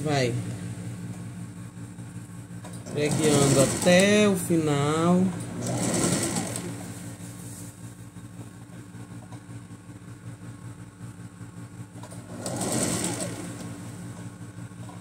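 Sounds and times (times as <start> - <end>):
sewing machine stitching: 2.7 - 7.2, 12.0 - 14.0.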